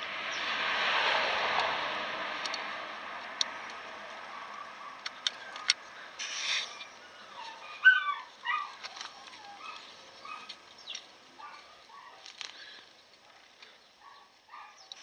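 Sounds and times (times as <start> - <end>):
sharp metallic clicks: 2.4 - 3.9
brake shoes rustling and scraping: 3.2 - 15.0.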